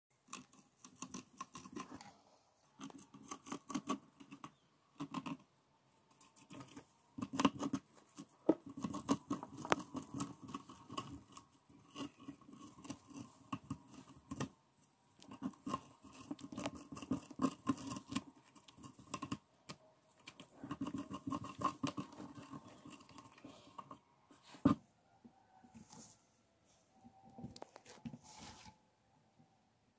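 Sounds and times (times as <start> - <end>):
hamster scratching in paper bedding: 6.2 - 14.5, 15.2 - 19.4, 20.2 - 23.3.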